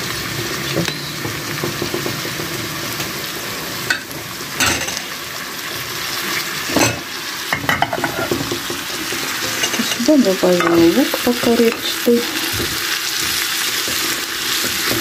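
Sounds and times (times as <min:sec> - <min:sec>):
carrots sizzling in a frying pan: 0:00.0 - 0:15.0
utensils clinking: 0:06.7 - 0:15.0.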